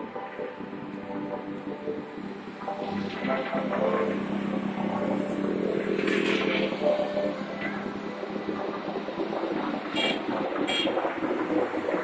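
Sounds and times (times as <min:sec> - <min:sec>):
road traffic passing: 0:02.2 - 0:11.9.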